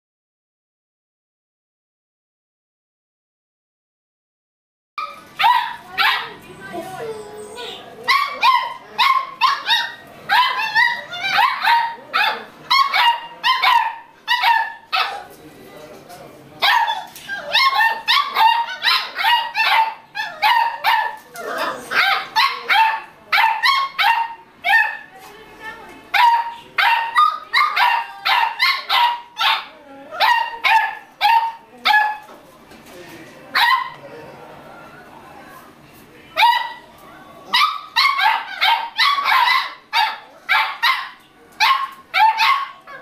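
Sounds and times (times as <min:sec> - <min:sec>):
puppies barking and yipping: 0:05.0 - 0:15.3, 0:16.6 - 0:25.0, 0:26.2 - 0:32.3, 0:37.5 - 0:43.0.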